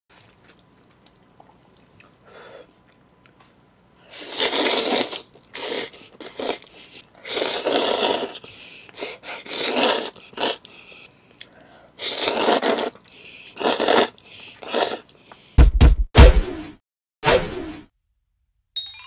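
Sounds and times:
noodles slurped: 4.1 - 15.5.

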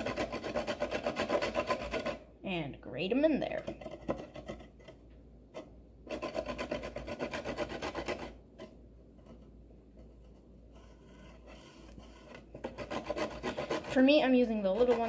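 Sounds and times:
carrot rasping on grater: 0.0 - 2.3, 6.1 - 8.7, 10.9 - 15.0.

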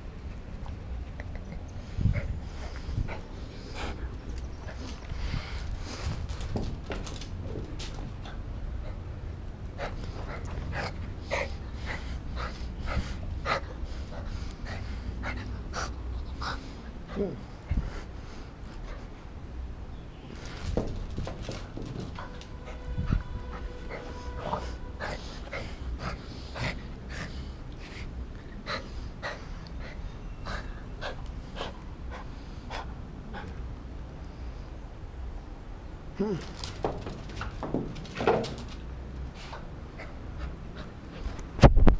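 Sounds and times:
steady low rumble: 0.0 - 19.9.

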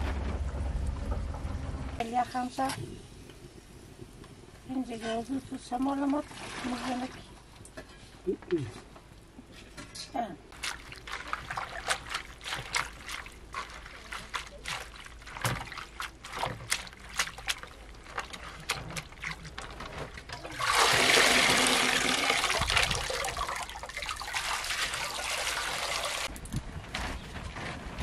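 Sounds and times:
water pouring and splashing: 6.0 - 7.8, 10.5 - 26.4
hands turning wet greens: 10.5 - 26.4
water dripping: 10.6 - 26.4.

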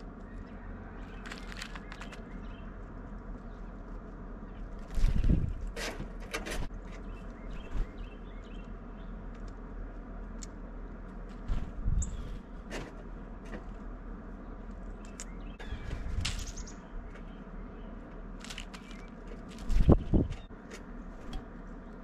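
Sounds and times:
bird wing flutters: 4.7 - 5.8, 19.5 - 20.3
faint high bird chirps: 15.0 - 18.0
knocks and rustles in seeds: 18.4 - 20.5.

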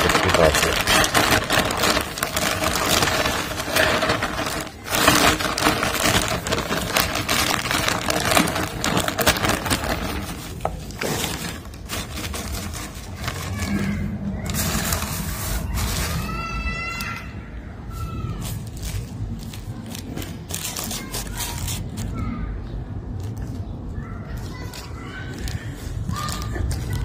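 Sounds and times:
plastic bag crinkling and rustling: 0.0 - 17.2, 18.4 - 22.2, 23.1 - 27.0
compost rustling as it falls: 0.0 - 17.3.

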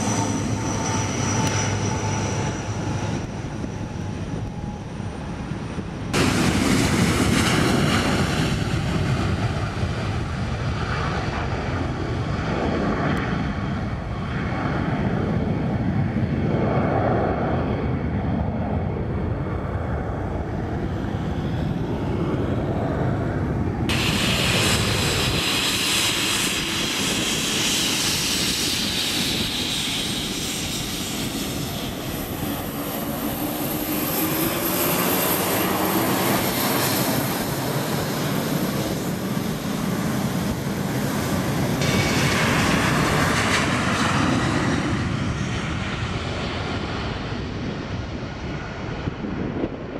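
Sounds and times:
jet airliner climbing rumble: 0.0 - 49.9
jet engine whine passing: 0.0 - 49.9.

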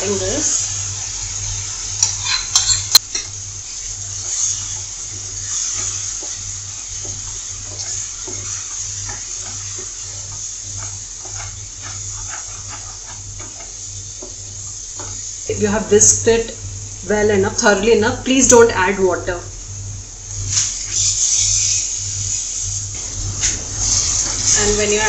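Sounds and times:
faint sizzle: 0.0 - 25.0
utensils clinking: 2.0 - 3.3
wooden spatula scraping a pan: 3.9 - 15.4.

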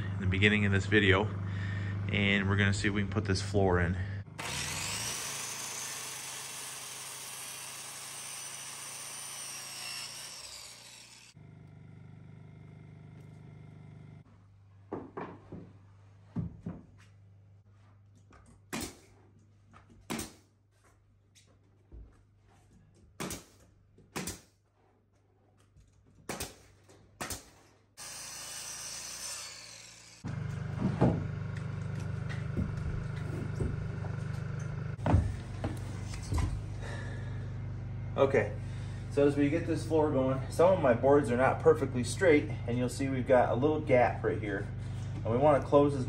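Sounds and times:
circular saw cutting wood: 4.3 - 14.2, 28.0 - 37.2
nail gun firing into wood: 18.7 - 19.1, 20.1 - 20.4, 23.2 - 24.5, 26.2 - 27.6.

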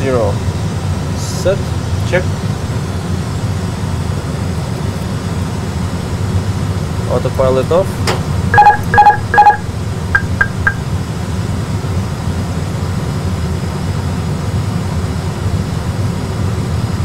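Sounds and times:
low rumble of engine and airflow: 0.0 - 17.0
short high beeps: 8.6 - 10.8.

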